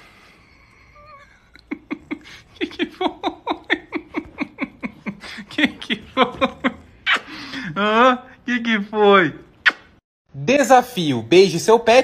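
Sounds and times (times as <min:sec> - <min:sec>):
woman laughing: 0:01.5 - 0:08.2.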